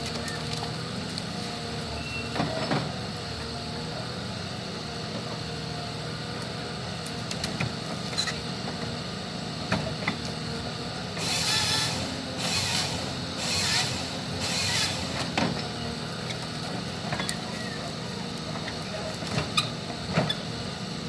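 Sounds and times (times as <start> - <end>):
diesel engine humming: 0.0 - 21.0
hydraulic whining: 11.1 - 20.6.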